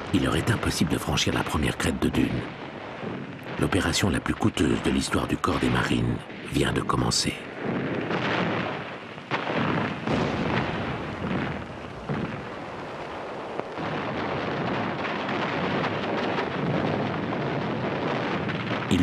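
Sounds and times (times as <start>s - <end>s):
sharp artillery blasts: 0.0s - 19.0s.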